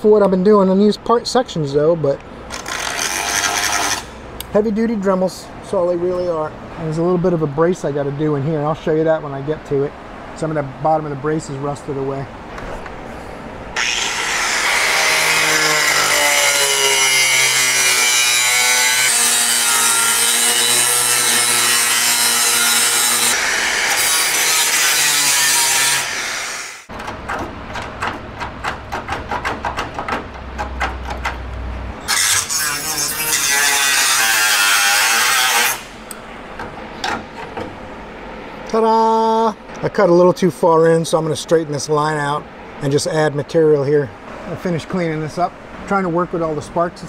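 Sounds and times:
cut-off wheel cutting sheet steel: 0:02.5 - 0:04.2, 0:13.8 - 0:26.9, 0:32.0 - 0:36.1.

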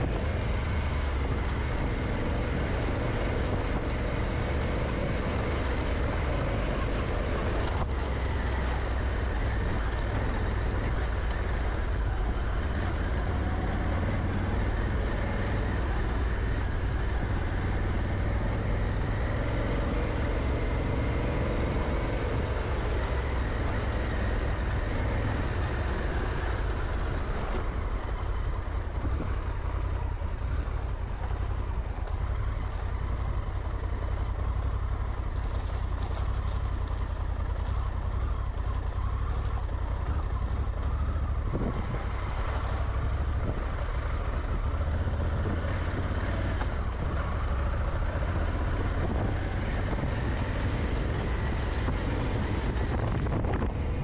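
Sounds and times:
motorcycle engine running: 0:00.0 - 0:54.0
wind rumble on microphone: 0:00.0 - 0:54.0
crackles: 0:21.8 - 0:53.0.

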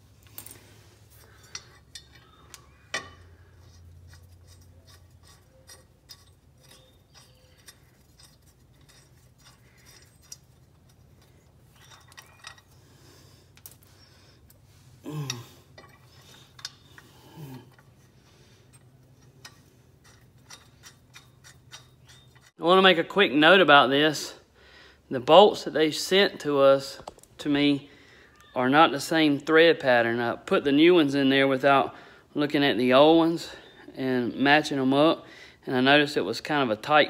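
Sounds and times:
metal bracket clicking and rattling: 0:01.2 - 0:12.8, 0:15.2 - 0:22.6.

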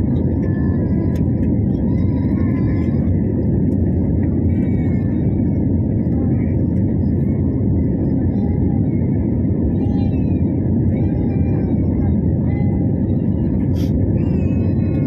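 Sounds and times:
faint passenger voices: 0:00.0 - 0:15.0
jet airliner cabin roar: 0:00.0 - 0:15.0.

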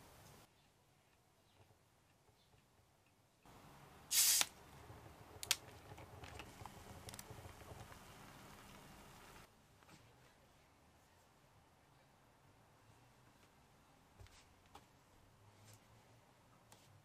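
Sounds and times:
short loud hiss: 0:04.1 - 0:04.6.

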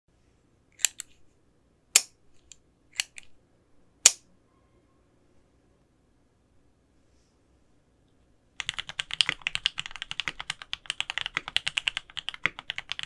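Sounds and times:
faint room hum: 0:00.1 - 0:13.0
sharp clicks: 0:00.8 - 0:01.2, 0:02.0 - 0:03.3.

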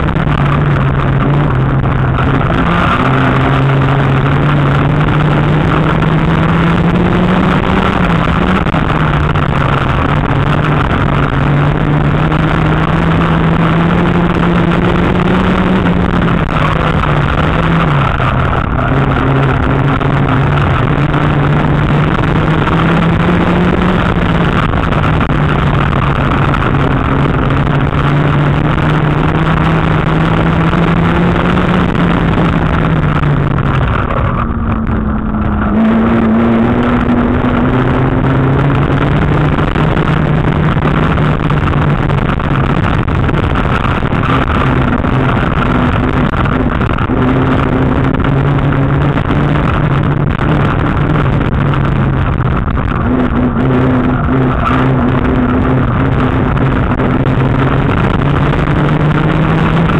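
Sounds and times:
car engine revving under load: 0:00.0 - 0:59.9.

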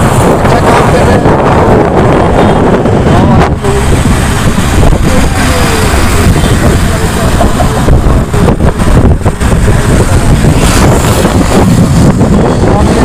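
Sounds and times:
motorbike road and engine noise: 0:00.0 - 0:13.0
wind buffeting microphone: 0:00.0 - 0:13.0.

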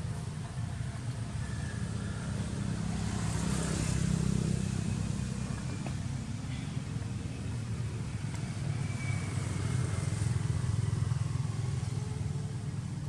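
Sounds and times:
road traffic rumble: 0:00.0 - 0:13.0.

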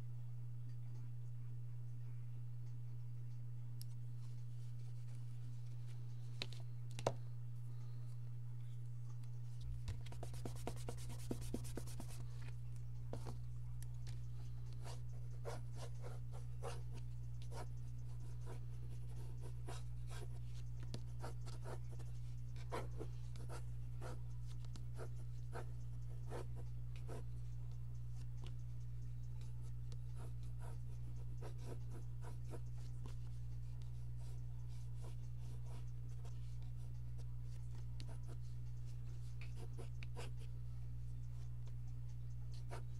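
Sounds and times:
steady low hum: 0:00.0 - 0:42.9
pencil scratching on paper: 0:10.0 - 0:12.3, 0:14.4 - 0:27.6, 0:28.2 - 0:40.5, 0:42.1 - 0:42.9.

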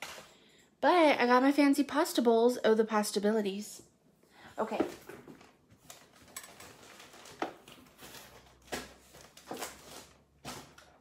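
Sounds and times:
cardboard packaging rustling: 0:05.3 - 0:11.0.

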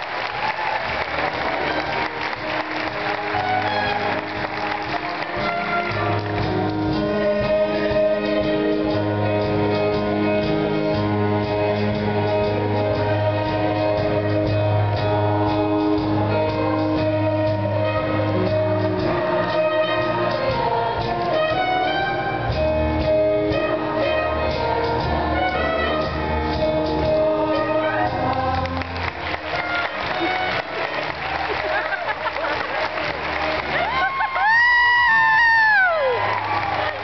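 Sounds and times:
audience applause: 0:00.0 - 0:06.8, 0:28.2 - 0:37.0
brass band music: 0:00.0 - 0:37.0.

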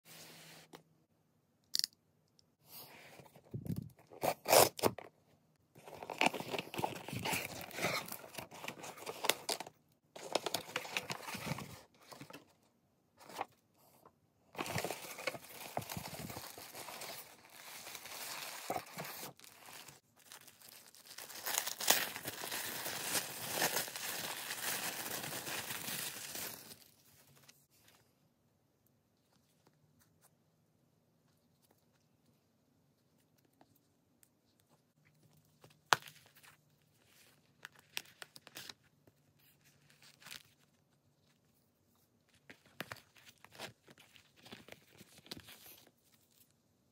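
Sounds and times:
paper and cardboard rustling: 0:05.8 - 0:12.5, 0:14.6 - 0:28.1.

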